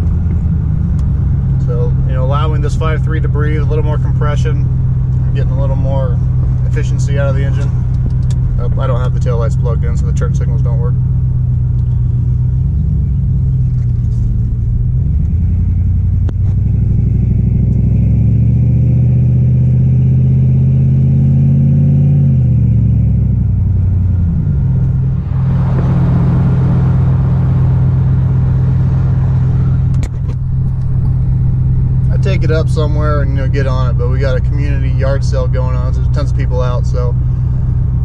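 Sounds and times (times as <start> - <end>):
pickup engine revving: 0.0 - 38.0
rushing noise: 24.9 - 31.9.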